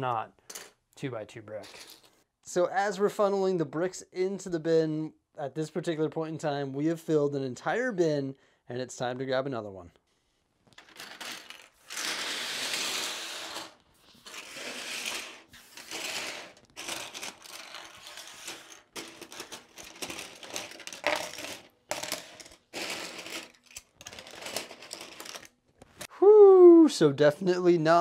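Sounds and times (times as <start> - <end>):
plastic bricks clattering on desk: 10.7 - 25.6.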